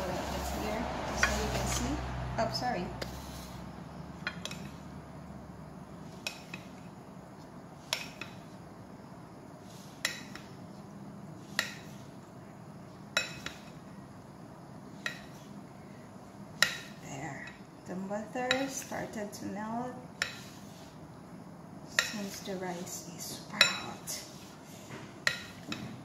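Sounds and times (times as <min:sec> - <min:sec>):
spatula clinking against ceramic bowl: 0:13.2 - 0:13.7, 0:23.6 - 0:24.2, 0:25.2 - 0:25.8.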